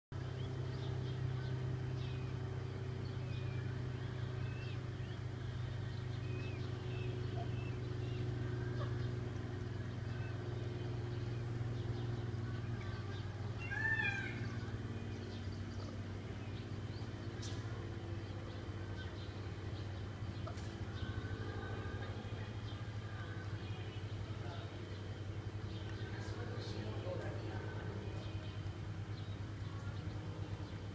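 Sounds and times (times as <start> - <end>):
low mechanical hum: 0.1 - 30.9
peafowl chicks peeping: 0.3 - 21.3.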